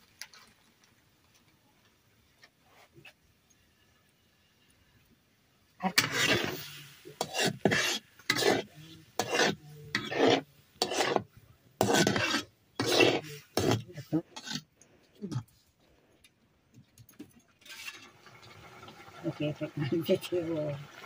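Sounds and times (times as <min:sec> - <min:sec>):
metal spatula scraping wok: 0:05.8 - 0:14.7, 0:17.6 - 0:18.2.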